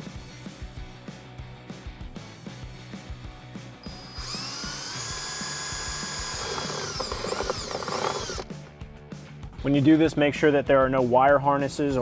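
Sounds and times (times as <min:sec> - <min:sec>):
power drill boring through plastic: 0:03.8 - 0:08.5.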